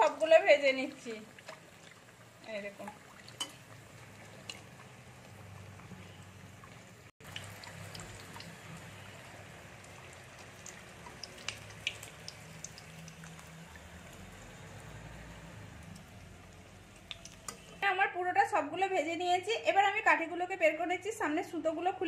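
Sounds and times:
dough sizzling in hot oil: 0:00.0 - 0:18.5
oil pops and crackles: 0:10.3 - 0:14.2, 0:15.8 - 0:17.8.

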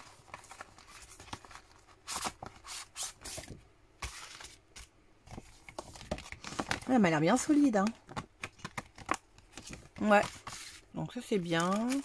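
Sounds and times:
plastic packaging crinkling: 0:08.4 - 0:12.0.

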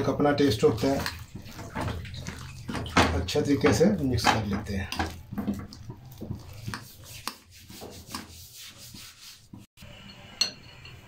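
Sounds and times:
spoon beating batter in glass bowl: 0:00.6 - 0:09.4.

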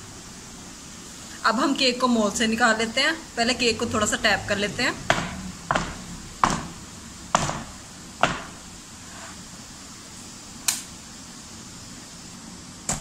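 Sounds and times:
metal cake pan knocking on wood: 0:05.1 - 0:06.8, 0:07.4 - 0:08.6
sharp thin click: 0:10.7 - 0:10.9.

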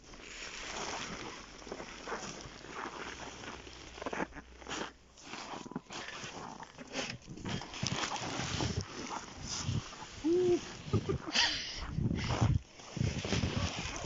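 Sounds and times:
footsteps crunching in snow: 0:00.0 - 0:14.0
nylon fabric rustling and flapping: 0:05.2 - 0:14.0.

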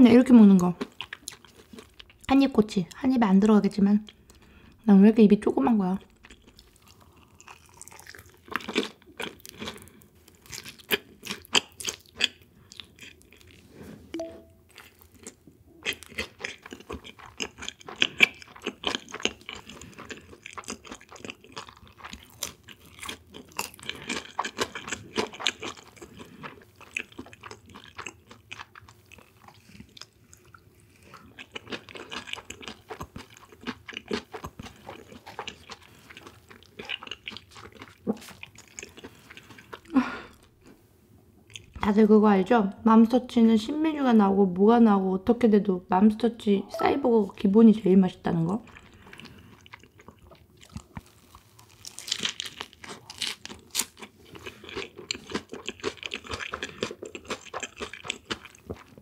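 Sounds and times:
crunchy food chewing: 0:00.5 - 0:02.4, 0:06.1 - 0:13.8, 0:14.7 - 0:40.8, 0:48.6 - 0:59.0.

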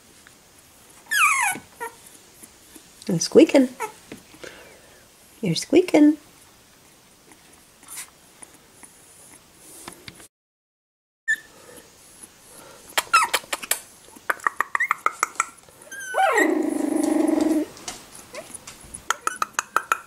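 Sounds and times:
puppy whine: 0:01.0 - 0:02.2, 0:11.3 - 0:11.5, 0:13.0 - 0:13.6, 0:14.8 - 0:19.8
puppy yips: 0:01.1 - 0:02.0, 0:11.3 - 0:11.5, 0:13.0 - 0:13.6, 0:14.5 - 0:17.3, 0:19.1 - 0:19.9
puppies squeaking: 0:01.1 - 0:02.1, 0:11.3 - 0:11.5, 0:13.0 - 0:17.7, 0:18.3 - 0:20.0
quick sharp clicks: 0:13.0 - 0:15.5.

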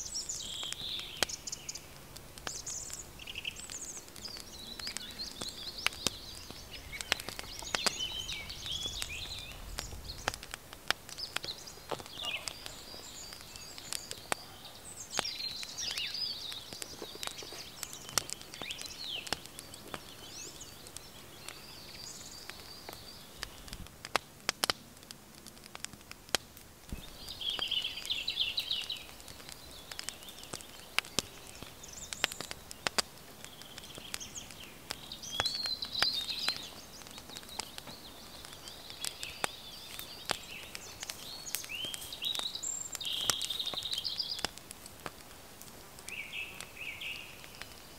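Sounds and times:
small birds chirping and trilling: 0:00.0 - 0:47.9
sharp clicks and ticks: 0:08.6 - 0:14.4, 0:22.5 - 0:26.4, 0:28.7 - 0:46.7.

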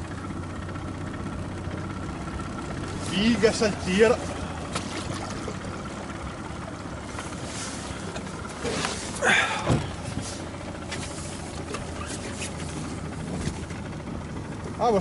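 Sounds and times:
outboard motor idling: 0:00.0 - 0:15.0.

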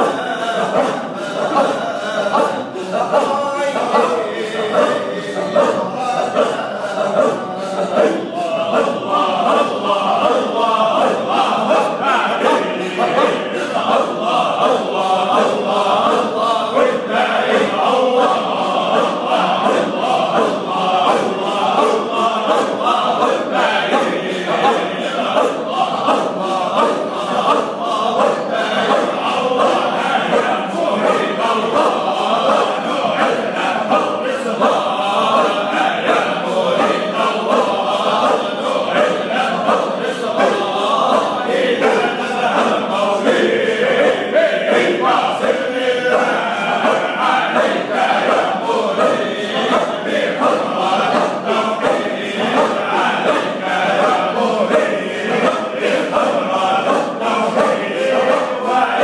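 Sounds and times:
men chanting together: 0:00.0 - 0:59.0.

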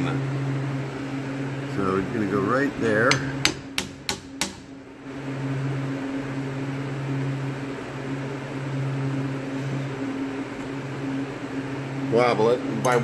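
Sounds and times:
low mechanical hum with hiss: 0:00.0 - 0:13.0.

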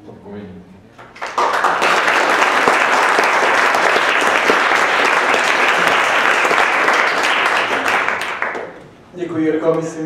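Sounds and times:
audience applauding: 0:01.0 - 0:08.8.

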